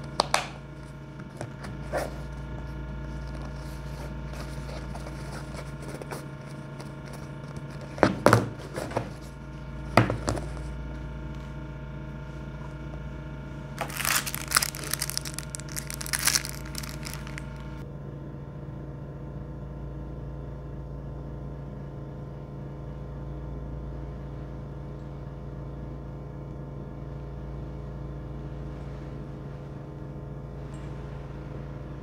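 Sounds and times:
low hum: 0:00.0 - 0:32.0
plastic sleeve crinkling: 0:03.0 - 0:08.0, 0:13.8 - 0:17.8
cases knocking on countertop: 0:10.0 - 0:10.5.

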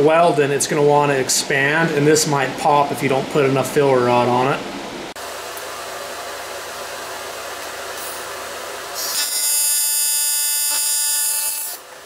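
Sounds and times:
welding arc buzzing: 0:07.6 - 0:11.9.

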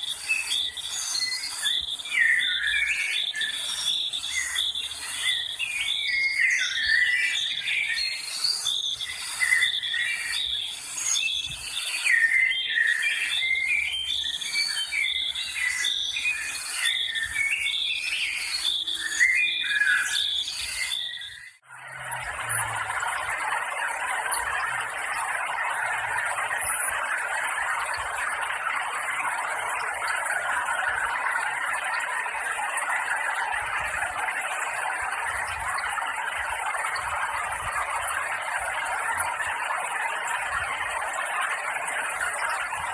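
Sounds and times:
stream running over stones: 0:21.6 - 0:42.9.

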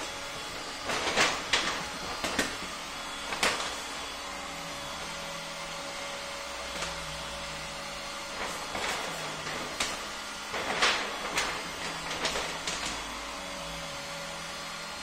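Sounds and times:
fan-like hum: 0:00.0 - 0:15.0
vinyl film crackling: 0:00.6 - 0:03.8, 0:08.3 - 0:13.0.

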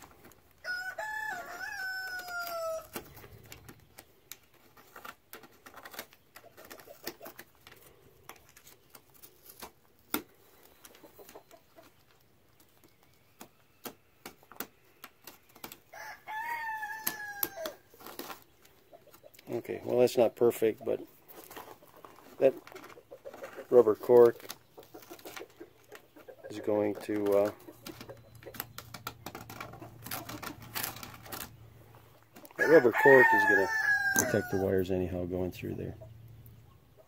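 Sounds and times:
rooster crowing: 0:00.6 - 0:02.9, 0:15.9 - 0:17.8, 0:32.6 - 0:34.7.

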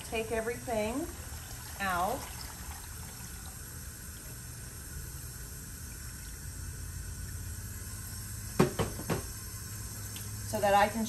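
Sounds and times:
water trickling into a tub: 0:00.0 - 0:08.5
faucet running: 0:00.0 - 0:11.0.

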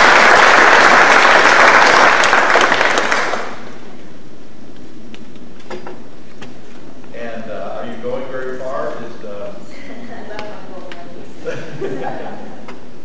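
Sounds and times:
audience applauding: 0:00.0 - 0:03.8.

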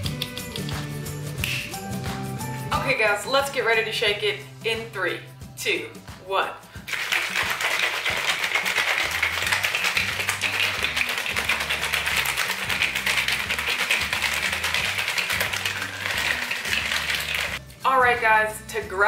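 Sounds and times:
background music with bass: 0:00.0 - 0:06.9, 0:09.0 - 0:19.0
shaker bottle rattling: 0:06.9 - 0:17.6.

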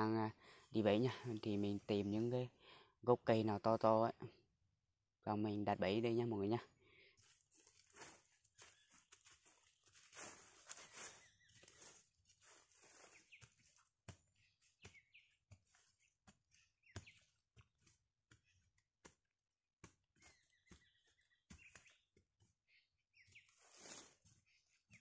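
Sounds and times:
bird chirps: 0:14.4 - 0:17.4, 0:20.2 - 0:22.1, 0:22.7 - 0:25.0.

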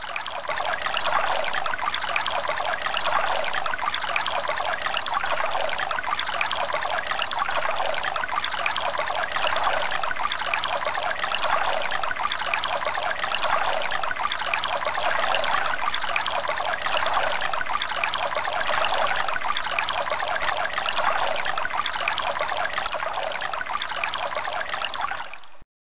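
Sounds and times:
water trickling and splashing: 0:00.0 - 0:25.6.

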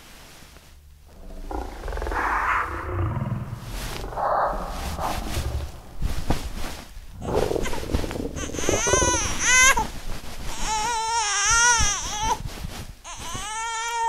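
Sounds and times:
low rumble: 0:00.5 - 0:10.5.

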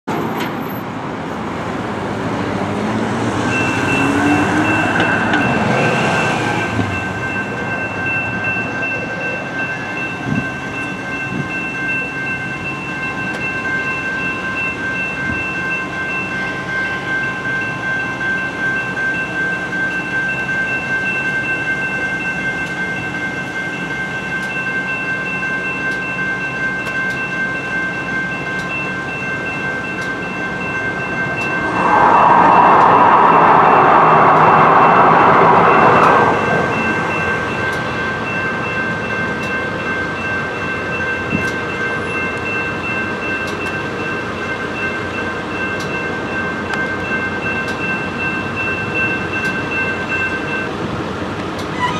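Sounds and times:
street traffic: 0:00.0 - 0:51.9
railroad crossing bells ringing: 0:00.1 - 0:51.9
vehicle passing loudly: 0:02.3 - 0:07.6, 0:30.9 - 0:38.0.

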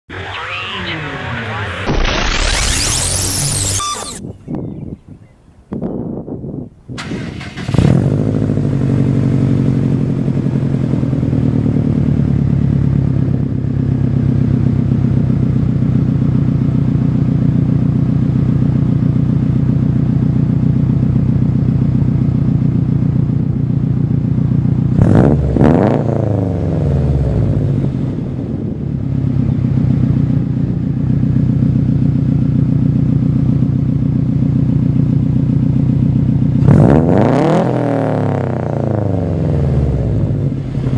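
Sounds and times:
engine revving: 0:00.1 - 0:04.2, 0:07.0 - 0:13.3, 0:24.9 - 0:28.8, 0:36.5 - 0:40.9
car engine starting and idling: 0:00.1 - 0:04.3, 0:06.8 - 0:40.9.

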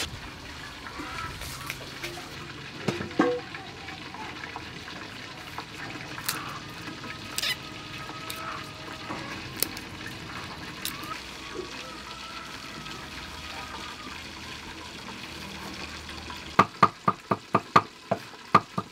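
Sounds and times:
papery garlic skins crackling: 0:01.2 - 0:02.4, 0:04.3 - 0:12.6.

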